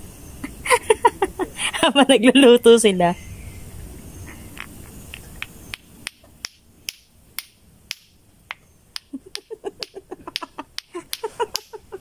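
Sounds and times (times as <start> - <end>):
clacker toy balls clacking: 5.4 - 11.8.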